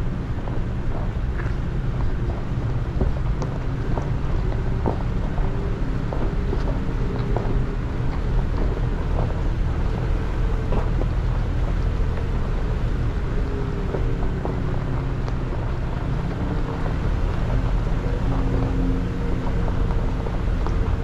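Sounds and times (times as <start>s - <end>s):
engine and tyre rumble: 0.0s - 21.0s
truck knocks and clicks: 0.1s - 21.0s.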